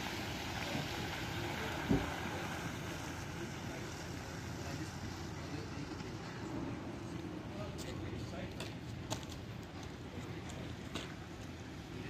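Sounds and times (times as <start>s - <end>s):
low thump: 1.8s - 2.1s.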